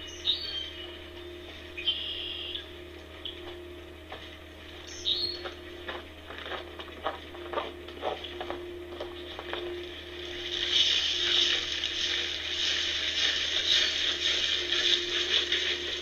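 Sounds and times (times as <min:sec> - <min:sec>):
bird chirping: 0:00.0 - 0:01.0, 0:04.8 - 0:05.5
electrical hum: 0:00.0 - 0:16.0
footsteps crunching over ground: 0:02.9 - 0:16.0.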